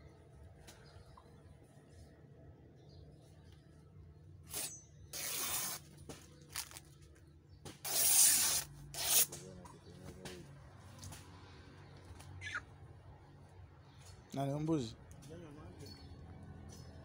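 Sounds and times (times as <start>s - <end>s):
cloth ripping: 4.5s - 6.8s, 7.8s - 9.3s.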